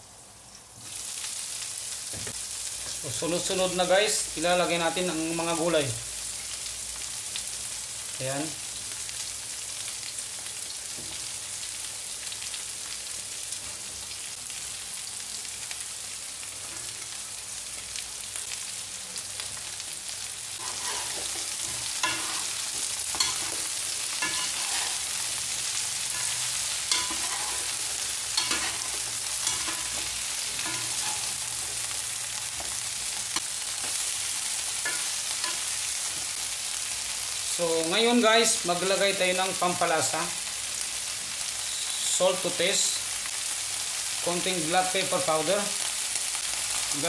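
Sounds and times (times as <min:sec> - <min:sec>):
vegetables sizzling in oil: 0:00.0 - 0:47.0
utensils scraping a wok: 0:20.6 - 0:31.8, 0:34.8 - 0:36.4.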